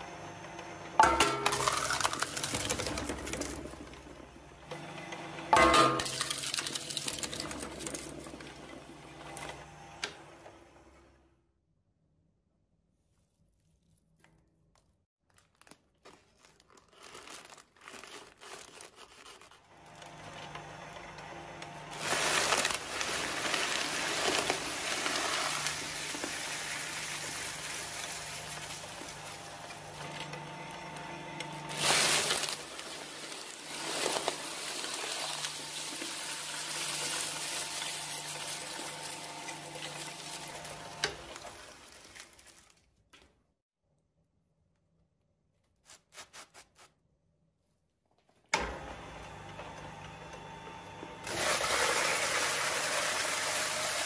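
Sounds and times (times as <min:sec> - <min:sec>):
shredder motor hum: 0:00.0 - 0:11.4, 0:18.4 - 0:42.5, 0:48.5 - 0:54.0
popcorn crunching in shredder: 0:01.0 - 0:04.4, 0:05.5 - 0:09.4, 0:15.2 - 0:42.9, 0:51.2 - 0:54.0.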